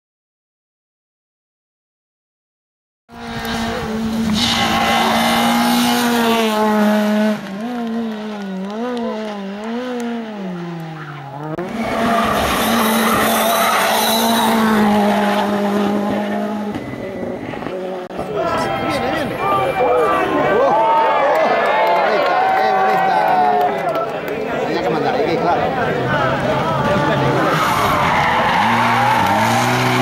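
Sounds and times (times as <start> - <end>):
rally car engines at full throttle: 3.1 - 20.7, 23.3 - 30.0.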